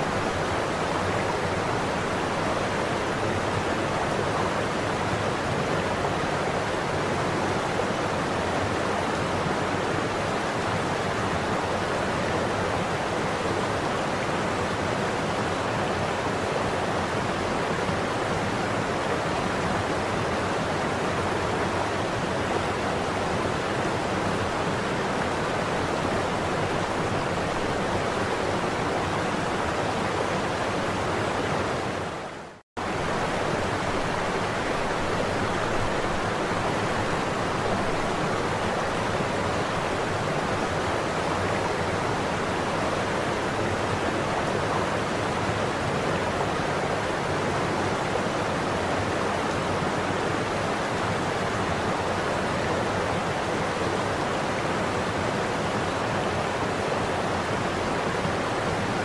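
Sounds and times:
waterfall and river rapids rushing: 0:00.0 - 0:59.0.

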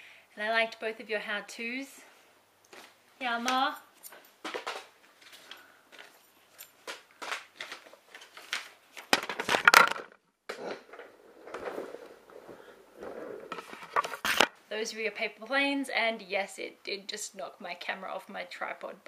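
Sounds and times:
paper crinkling and rustling: 0:04.4 - 0:10.0, 0:10.9 - 0:14.5
knocks and clatter: 0:09.1 - 0:11.9.

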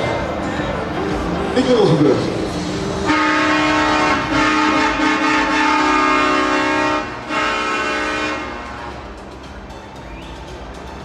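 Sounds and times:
truck air horn blasts: 0:03.0 - 0:09.0.

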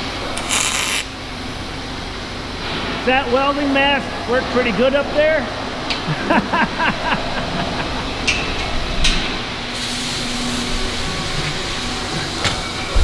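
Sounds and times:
steady hiss: 0:08.9 - 0:13.0.

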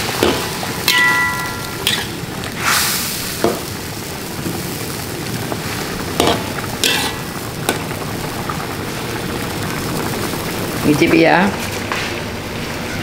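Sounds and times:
food hissing while cooking: 0:01.8 - 0:12.3
metal spatula scraping wok: 0:06.2 - 0:07.2.

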